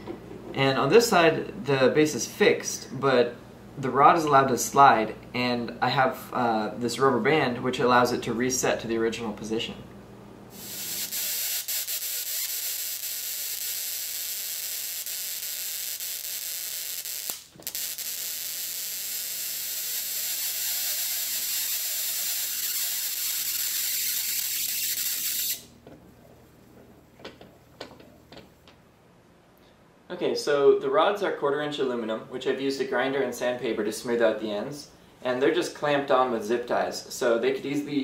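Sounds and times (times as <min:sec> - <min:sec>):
high-voltage spark buzzing hiss: 0:10.5 - 0:25.7.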